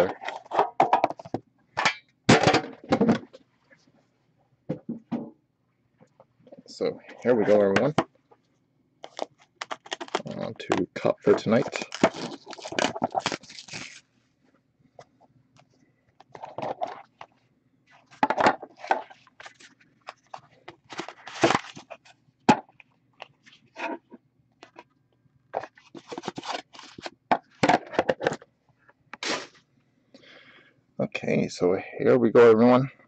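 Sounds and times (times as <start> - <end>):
packaging crinkling and tearing: 9.0 - 14.1, 19.0 - 22.1, 25.7 - 27.1.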